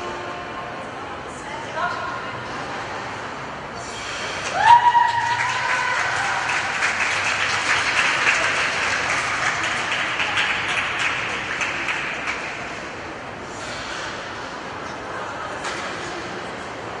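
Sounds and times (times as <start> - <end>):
spectators clapping and applauding: 4.4 - 12.9.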